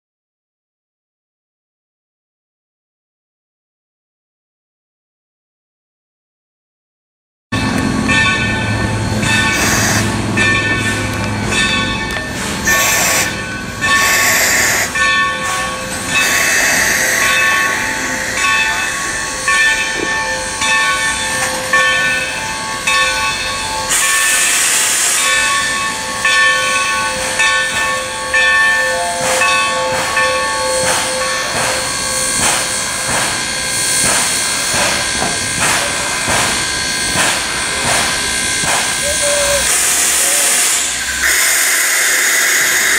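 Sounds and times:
bell ringing: 7.6s - 24.4s
steam locomotive moving slowly: 7.6s - 42.9s
steam hissing: 9.0s - 10.4s, 12.3s - 22.9s, 23.8s - 26.2s, 29.2s - 42.9s.

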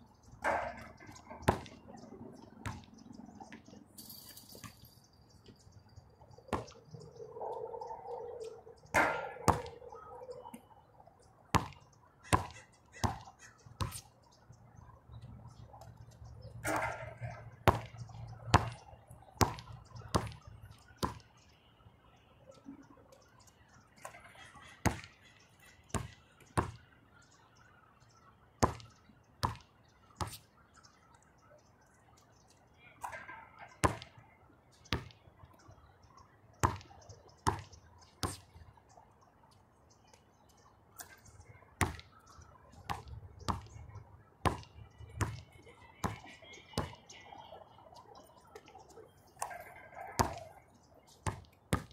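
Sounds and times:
basketball bouncing on hard court: 1.4s - 1.8s, 9.0s - 9.8s, 11.5s - 13.2s, 16.7s - 18.8s.

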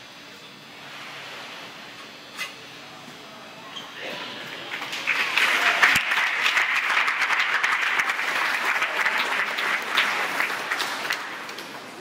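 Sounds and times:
crowd applauding: 4.7s - 12.0s.

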